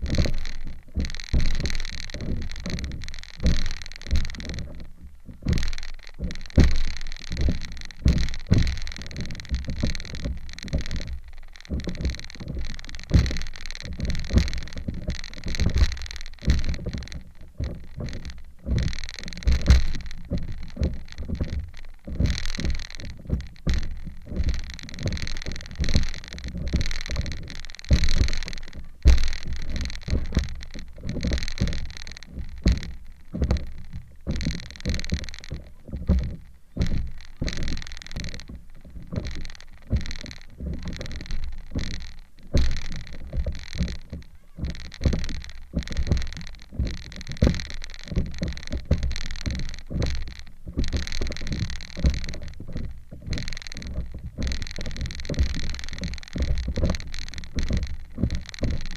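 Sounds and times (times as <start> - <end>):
board thumping on waves: 0.0 - 58.9
water splashing against board: 0.0 - 58.9.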